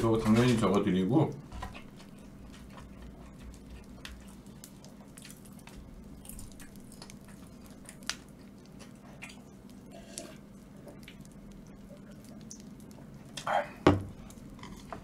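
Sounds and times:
person chewing chicken: 1.6 - 13.5.

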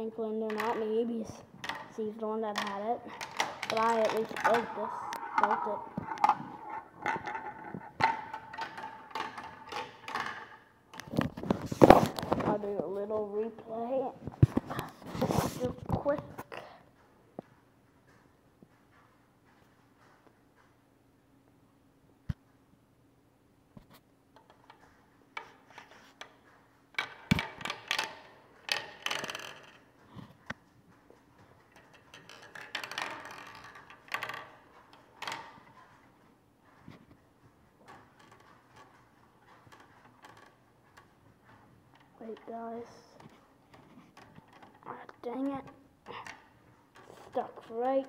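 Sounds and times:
ball clacking through plastic marble run: 0.5 - 12.6, 27.0 - 30.3, 31.6 - 35.8, 37.8 - 41.1, 41.9 - 48.0.

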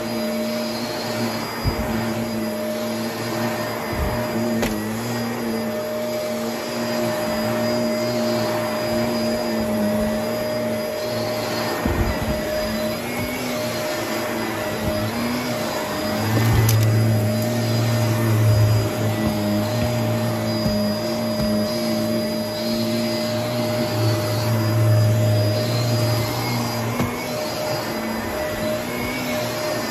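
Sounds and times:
vacuum cleaner motor hum: 0.0 - 29.9.

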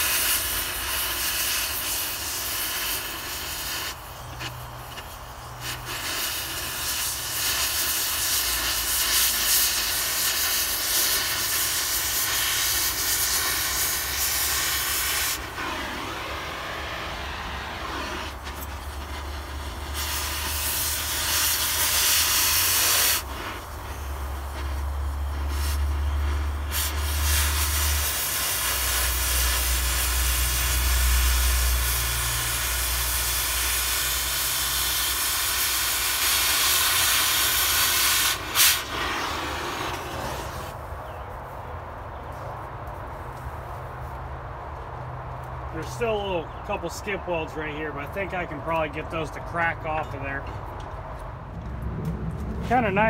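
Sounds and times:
cutting torch hissing: 0.0 - 40.9
low rumble: 51.1 - 53.0.

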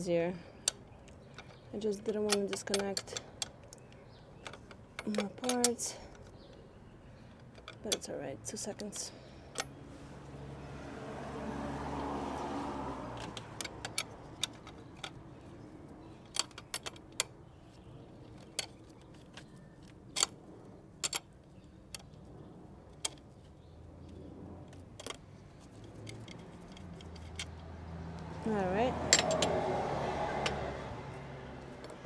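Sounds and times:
metallic tool clicks and clinks: 29.1 - 29.6.

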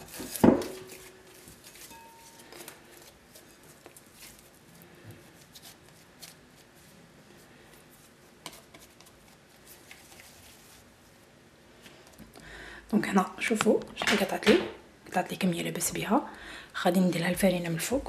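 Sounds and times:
hands rolling bread dough: 0.0 - 11.2.

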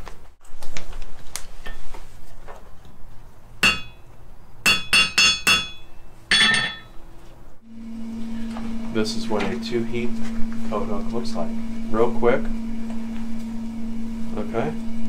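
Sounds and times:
hammer ringing on anvil: 3.6 - 7.0.

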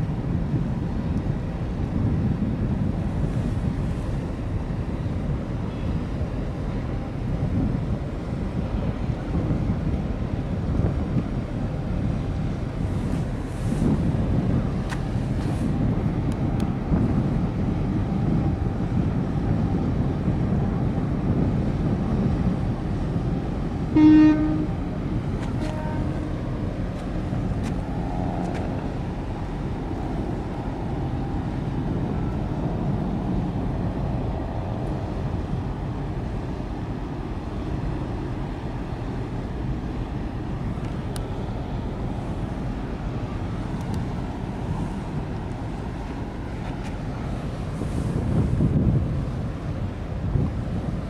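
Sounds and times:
wind and water rumble: 0.0 - 51.0
ship's horn blast: 23.6 - 26.9.

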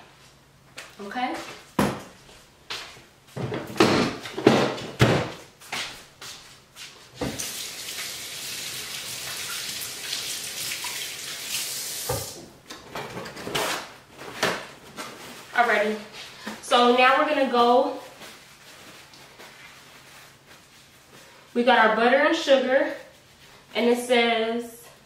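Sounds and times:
kitchen tap running: 7.2 - 12.5.

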